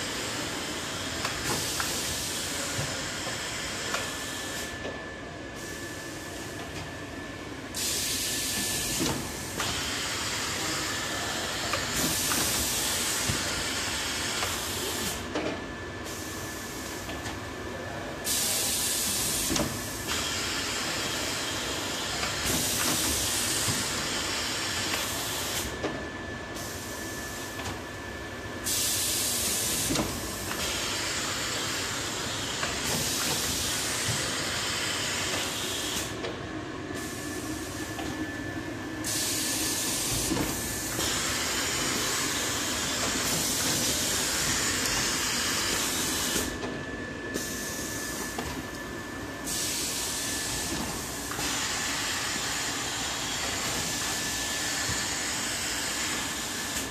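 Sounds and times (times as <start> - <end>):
loud machine hiss: 7.7 - 15.2, 18.2 - 25.7, 28.6 - 36.2, 39.0 - 46.6, 49.4 - 56.9.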